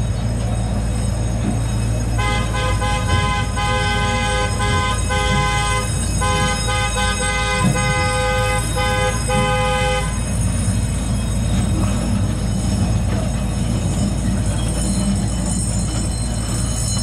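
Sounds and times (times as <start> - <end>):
low engine rumble: 0.0 - 17.0
train horn toots: 2.2 - 10.4.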